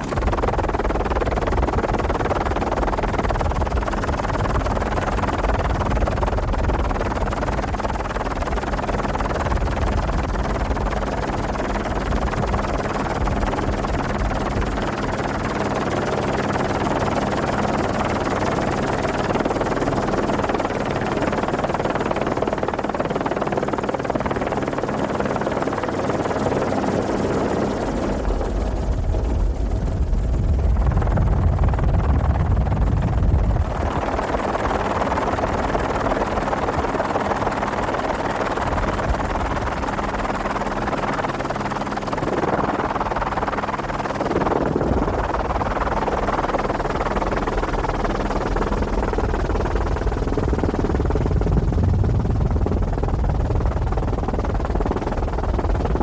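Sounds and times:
helicopter engine and rotor: 0.0 - 56.0.

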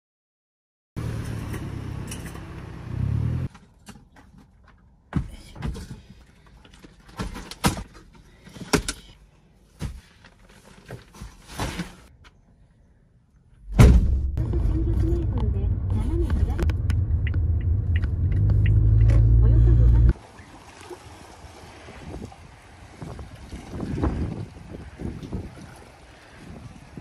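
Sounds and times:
low rumble: 13.6 - 20.2.

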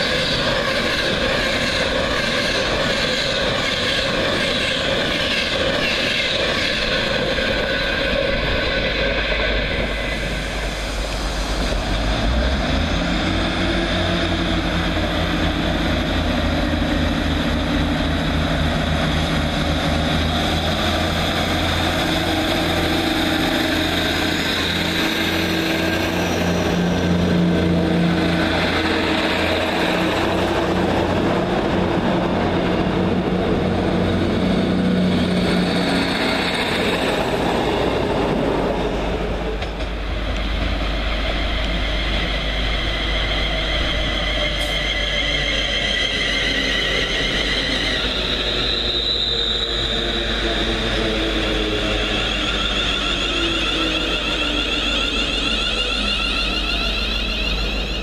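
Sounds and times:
train engines throbbing drone: 0.0 - 58.0.

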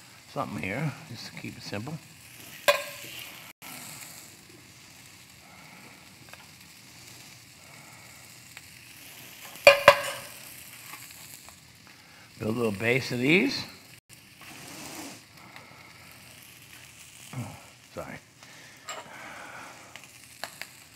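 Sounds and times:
vegetables sizzling in pan: 0.0 - 20.9
metal utensil clinking: 2.7 - 3.3, 9.6 - 10.4.

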